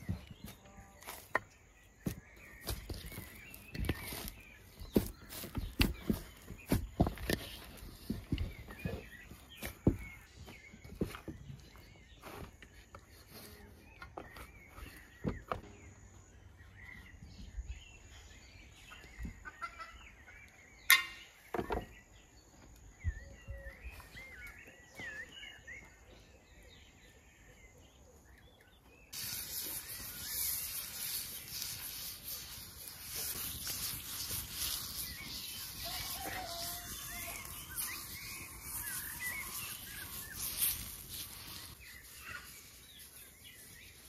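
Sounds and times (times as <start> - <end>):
small birds chirping: 0.0 - 44.0
crackling hiss of griddle: 29.1 - 44.0.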